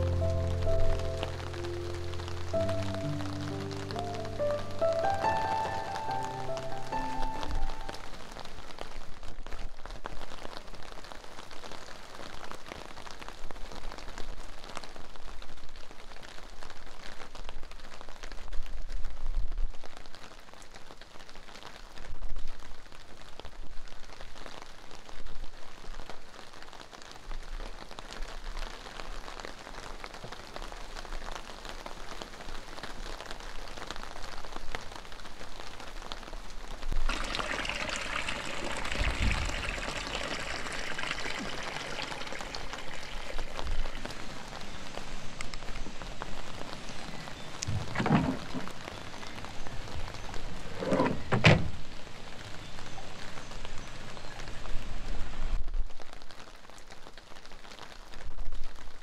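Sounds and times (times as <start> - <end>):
light rain pattering: 0.0 - 59.0
water running from tap into trug: 37.1 - 44.3.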